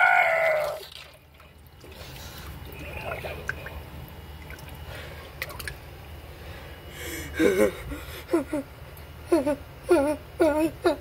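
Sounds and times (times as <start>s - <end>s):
person making high-pitched cries: 9.3s - 11.0s.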